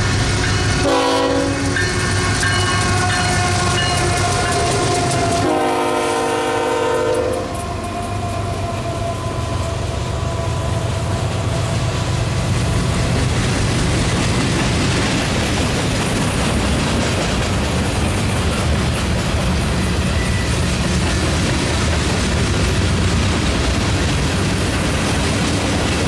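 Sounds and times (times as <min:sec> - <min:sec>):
locomotive horn: 0:00.0 - 0:11.3
wheel clatter on rails: 0:13.0 - 0:26.0.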